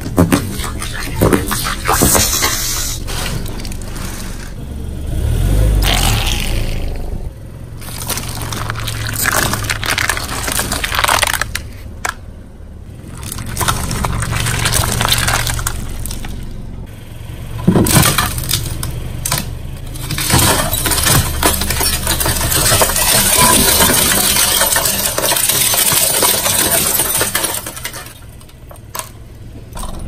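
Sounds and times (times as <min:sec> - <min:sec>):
car engine hum: 0:00.0 - 0:30.0
tyre crushing brittle objects: 0:07.8 - 0:12.2, 0:12.9 - 0:16.6, 0:17.6 - 0:29.1.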